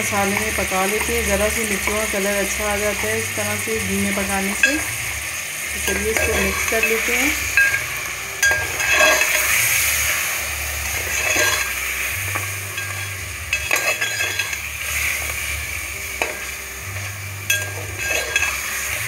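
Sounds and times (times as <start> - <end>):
meat sizzling in oil: 0.0 - 19.0
metal spoon scraping a pot: 5.8 - 19.0.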